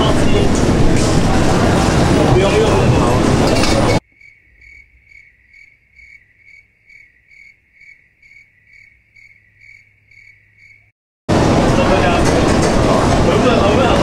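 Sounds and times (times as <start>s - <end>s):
crickets chirping: 4.0s - 10.9s.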